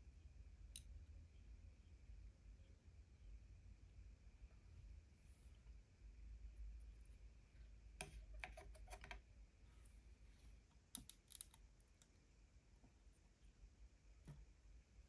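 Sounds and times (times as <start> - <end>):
small plastic clicks and taps: 10.9 - 12.1.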